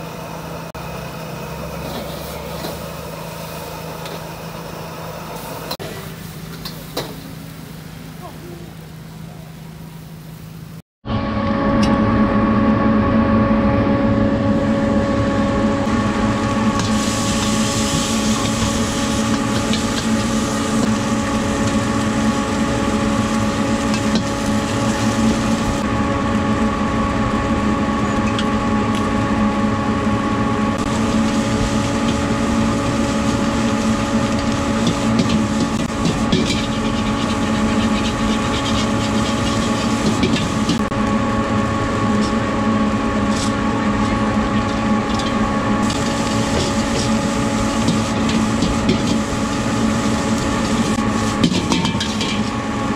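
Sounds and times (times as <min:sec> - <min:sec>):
mechanical drone with hum: 0:00.0 - 0:52.9
food sizzling in hot oil: 0:15.9 - 0:25.9, 0:30.8 - 0:40.9, 0:45.1 - 0:52.6
metal ladle scraping a wok: 0:34.3 - 0:40.9, 0:50.6 - 0:52.5.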